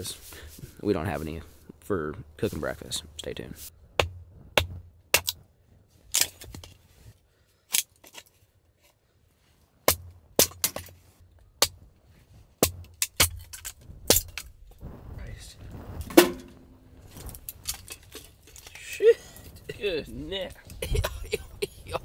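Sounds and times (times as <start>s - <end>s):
hatchet chopping wood: 4.0s - 5.4s, 9.8s - 10.9s, 12.6s - 14.3s.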